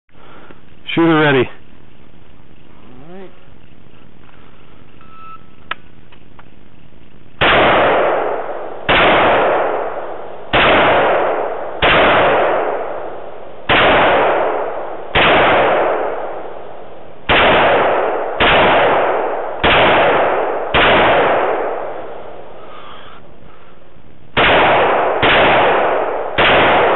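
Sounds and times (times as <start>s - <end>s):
rifle shots: 7.4s - 22.5s, 24.3s - 26.9s.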